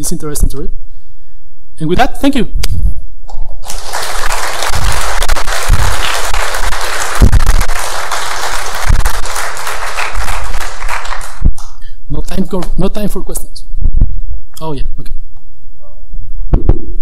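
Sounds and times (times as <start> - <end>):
audience applauding: 3.6 - 11.7
dull low thumps: 5.2 - 6.1, 7.1 - 7.8, 11.3 - 11.9, 13.6 - 15.4, 16.1 - 17.0.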